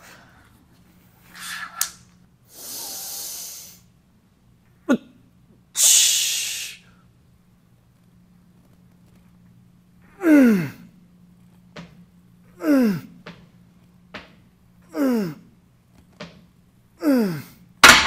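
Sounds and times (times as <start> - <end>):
man grunting while exhaling: 14.9 - 15.5, 17.0 - 17.6.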